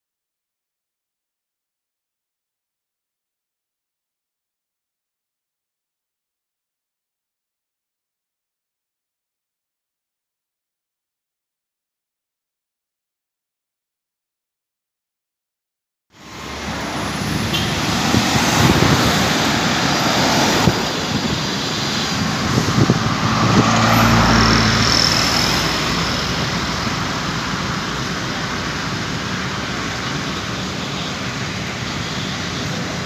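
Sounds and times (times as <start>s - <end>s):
street traffic noise: 16.1s - 33.0s.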